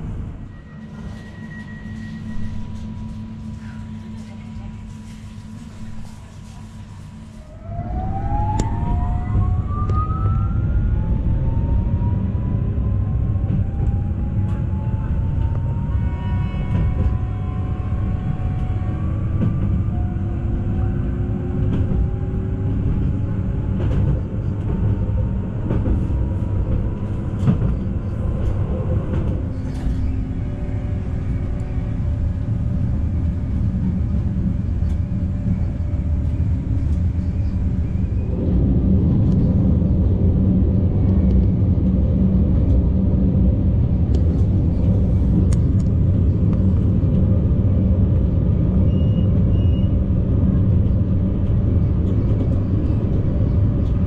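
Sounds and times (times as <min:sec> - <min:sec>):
train running rumble: 0:00.0 - 0:54.0
train whine rising in pitch: 0:07.3 - 0:22.4.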